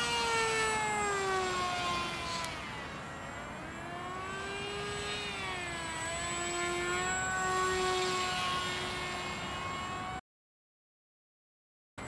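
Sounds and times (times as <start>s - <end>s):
electric motor and propeller whine: 0.0s - 10.2s.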